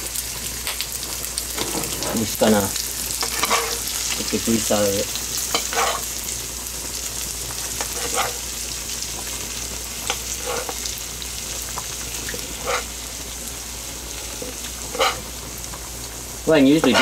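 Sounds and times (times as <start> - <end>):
meat sizzling in a frying pan: 0.0 - 17.0
utensil scraping a pan: 1.6 - 2.3, 3.2 - 3.9, 5.5 - 6.1, 7.8 - 8.4, 10.1 - 10.8, 12.3 - 12.9, 14.3 - 15.3.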